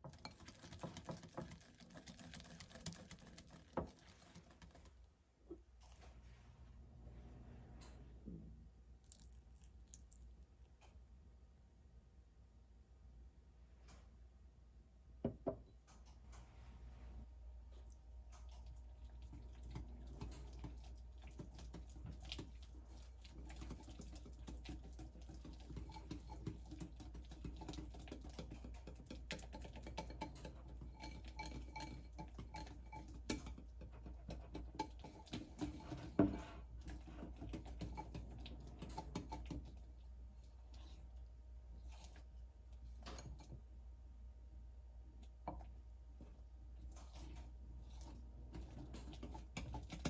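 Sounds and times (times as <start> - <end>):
whisk clicking against glass bowl: 23.4 - 35.9.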